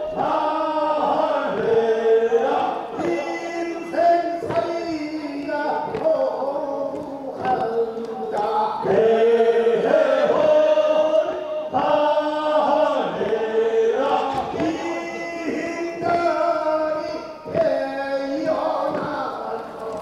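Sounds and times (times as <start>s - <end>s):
men chanting together: 0.0s - 20.0s.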